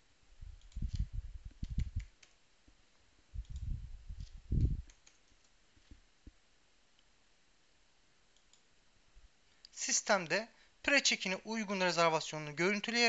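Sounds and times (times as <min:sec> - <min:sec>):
typing on keyboard: 0:04.8 - 0:05.5.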